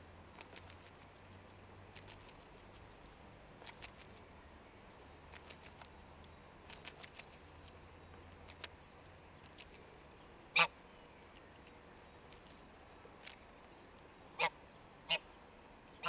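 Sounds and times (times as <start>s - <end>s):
goose bill clicking on leaf: 0.3s - 4.3s, 5.2s - 10.0s, 11.3s - 14.1s.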